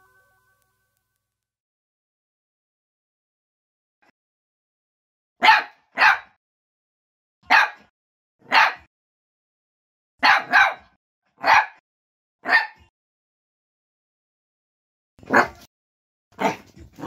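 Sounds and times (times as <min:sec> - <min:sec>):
puppy barking: 0:05.4 - 0:06.4, 0:07.4 - 0:08.9, 0:10.2 - 0:11.8, 0:12.4 - 0:12.9, 0:15.2 - 0:15.7, 0:16.4 - 0:17.0.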